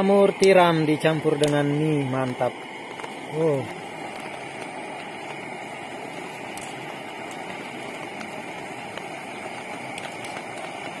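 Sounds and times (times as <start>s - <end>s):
pot boiling and hissing: 0.0s - 11.0s.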